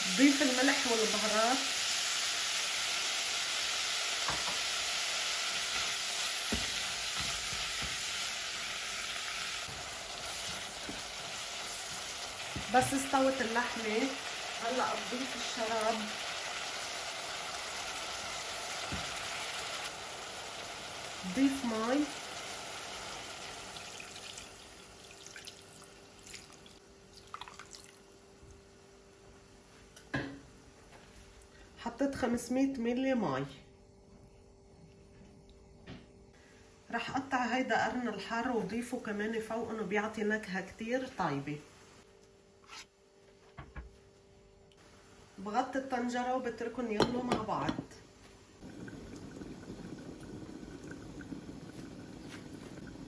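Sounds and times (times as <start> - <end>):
meat sizzling in hot oil: 0.0 - 27.9, 48.6 - 53.0
spoon stirring and scraping pot: 9.6 - 13.1
water drips: 23.8 - 28.0, 48.6 - 53.0.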